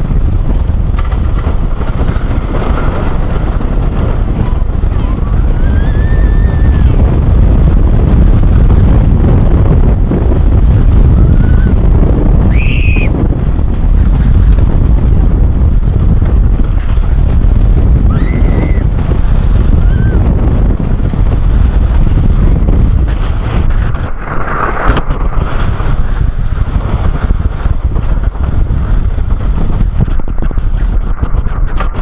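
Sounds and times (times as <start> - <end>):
roller coaster rumbling on track: 0.0 - 32.0
wind noise on microphone: 0.0 - 32.0
riders screaming: 4.4 - 7.1, 11.1 - 11.8, 12.5 - 13.2, 18.0 - 20.3.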